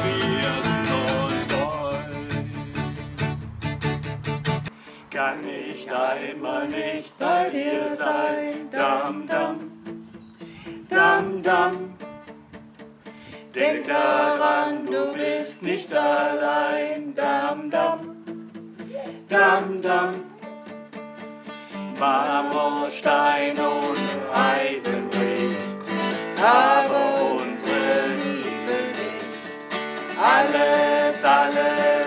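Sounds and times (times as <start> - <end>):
man and woman singing: 0.0 - 3.1, 5.1 - 9.8, 10.8 - 12.0, 13.5 - 18.2, 19.0 - 20.4, 21.9 - 32.0
acoustic guitar: 0.0 - 32.0.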